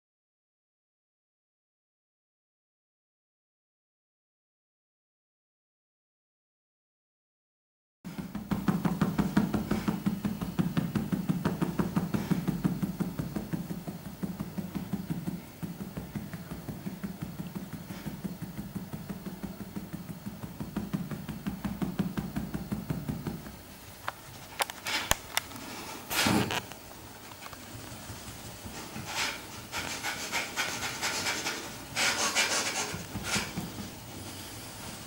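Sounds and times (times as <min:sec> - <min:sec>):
woman's rhythmic breathing: 0:08.1 - 0:23.7.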